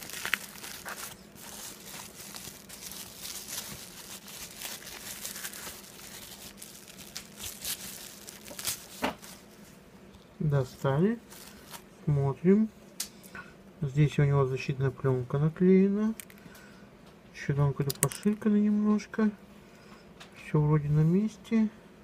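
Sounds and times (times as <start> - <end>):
bubble wrap crinkling: 0.0 - 9.8, 11.2 - 11.9, 17.9 - 18.5.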